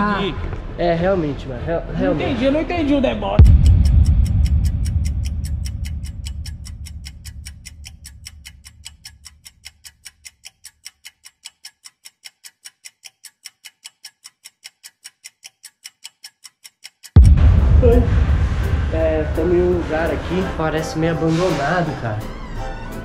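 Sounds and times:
background music: 0:00.0 - 0:06.9, 0:17.3 - 0:23.0
clock ticking: 0:03.4 - 0:22.9.

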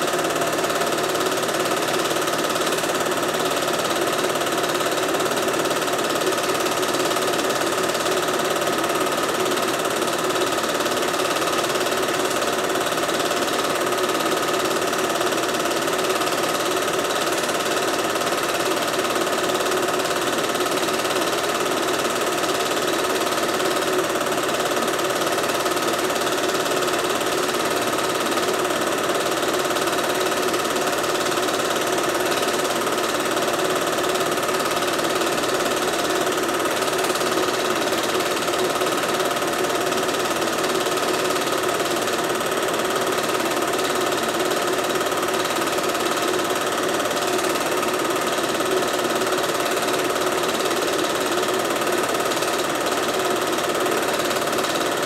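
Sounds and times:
film projector mechanical chatter: 0:00.0 - 0:55.0
projector motor hum: 0:00.0 - 0:55.0.

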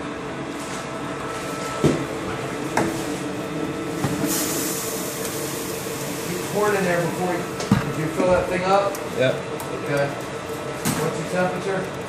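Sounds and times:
extruder machine humming: 0:00.0 - 0:12.0
dry meal pouring hiss: 0:04.2 - 0:07.2.

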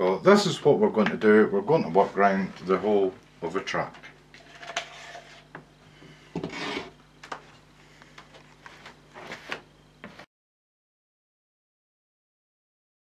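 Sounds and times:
plastic scraper spreading filler: 0:06.4 - 0:07.0.

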